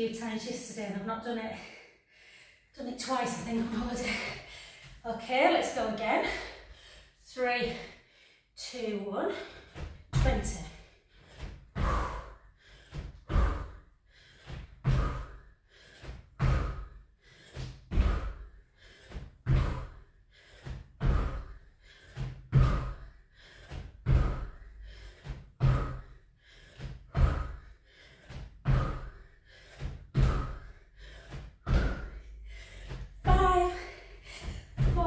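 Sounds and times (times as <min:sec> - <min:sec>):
hard breathing: 0:01.5 - 0:05.0, 0:06.2 - 0:08.6, 0:09.3 - 0:35.0
landing thuds on exercise mat: 0:34.4 - 0:35.0.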